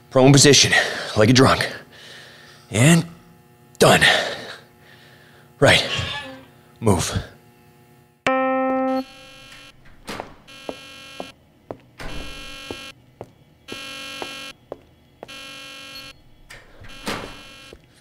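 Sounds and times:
electronic alarm buzzer blaring: 0:08.3 - 0:11.4, 0:12.0 - 0:17.8.

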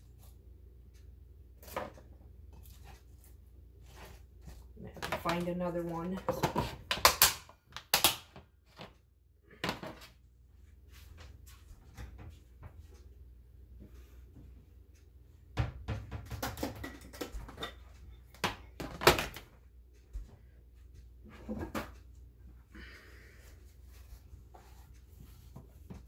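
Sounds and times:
containers knocking and clattering: 0:04.8 - 0:08.1, 0:15.6 - 0:19.5.

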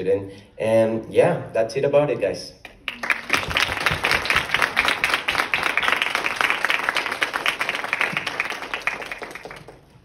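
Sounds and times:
audience applauding: 0:02.8 - 0:10.0.

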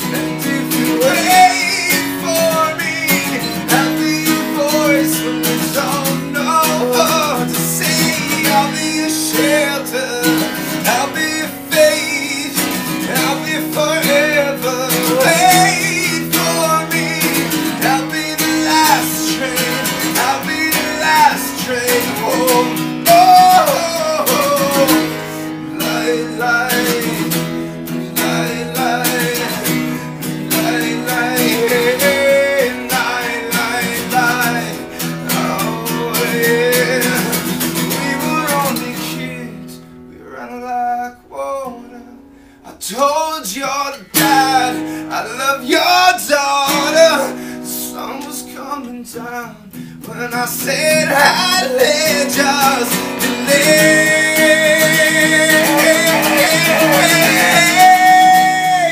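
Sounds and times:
acoustic guitar strumming: 0:00.0 - 0:58.9
man singing: 0:00.0 - 0:58.9.

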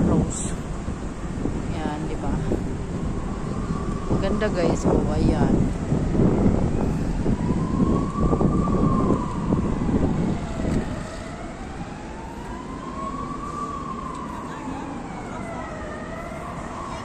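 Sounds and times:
emergency siren wailing: 0:00.0 - 0:17.0
low wind rumble on microphone: 0:00.0 - 0:17.0.

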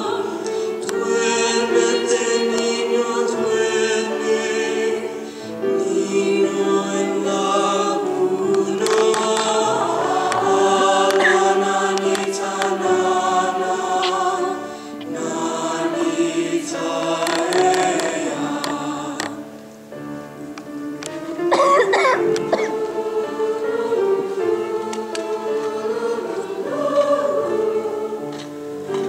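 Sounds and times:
amplified solo voice singing: 0:00.0 - 0:19.4
choir singing held chords: 0:00.0 - 0:29.0.

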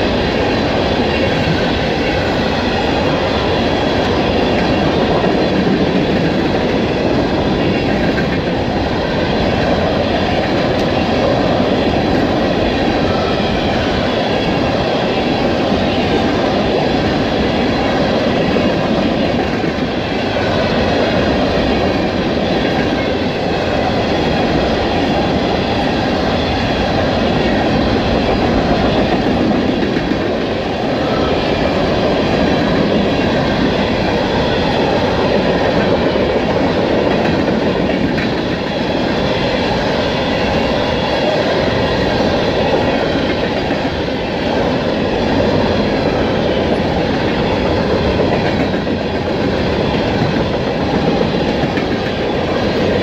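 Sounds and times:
freight train wheels rattling on rails: 0:00.0 - 0:53.0.

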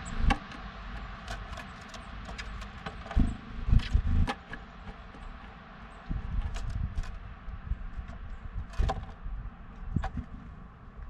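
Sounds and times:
bird pecking on wood: 0:00.2 - 0:07.2, 0:07.9 - 0:09.2.

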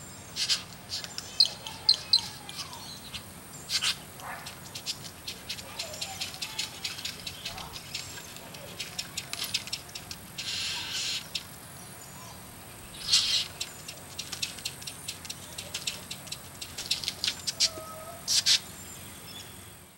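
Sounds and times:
birds giving rasping hiss calls: 0:00.1 - 0:19.9
sharp clicks and ticks: 0:04.2 - 0:10.6, 0:13.1 - 0:17.6.

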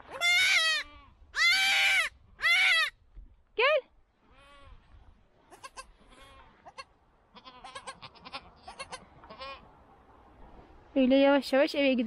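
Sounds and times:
goat kid bleating: 0:00.0 - 0:03.0, 0:04.2 - 0:04.8, 0:05.5 - 0:09.7.

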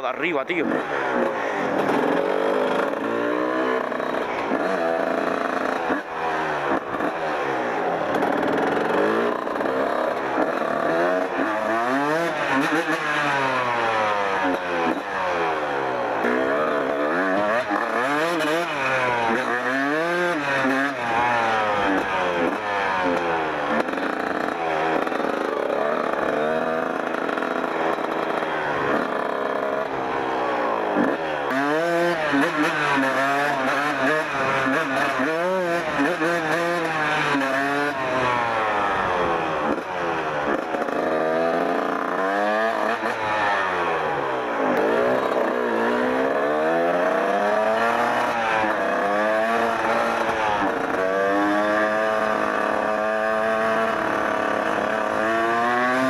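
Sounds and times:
two-stroke motorcycle engine revving: 0:00.0 - 0:56.0.

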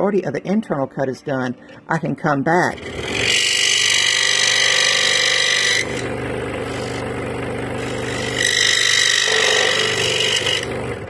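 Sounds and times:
saw blade whine: 0:02.7 - 0:11.0
scroll saw motor hum: 0:02.8 - 0:11.0.

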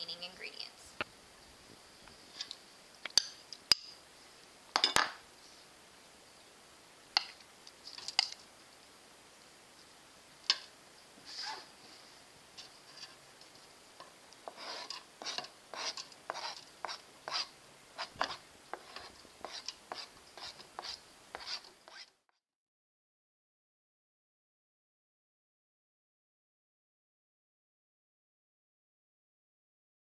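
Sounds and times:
knife scraping cutting board: 0:14.4 - 0:22.2.

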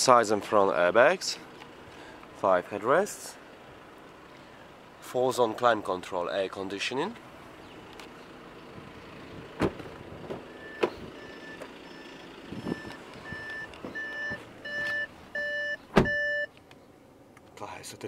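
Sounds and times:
electronic warning beeps: 0:10.5 - 0:16.5.

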